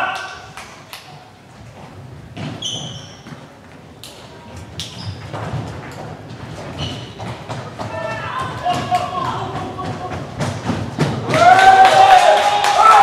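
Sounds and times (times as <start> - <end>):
thuds and knocks in a hall: 1.2 - 11.8
brief high squeak: 2.6 - 3.3.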